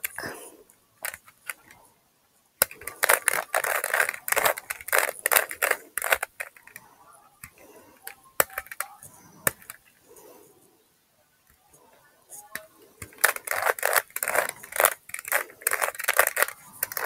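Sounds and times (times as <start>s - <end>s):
puzzle cube plastic clicking: 0.0s - 0.4s, 1.0s - 1.8s, 2.6s - 10.0s, 12.3s - 17.0s.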